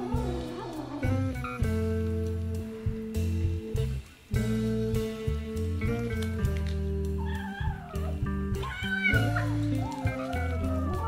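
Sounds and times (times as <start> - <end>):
kittens mewing: 0.0 - 1.6, 7.1 - 11.0
music with low held notes: 0.0 - 11.0.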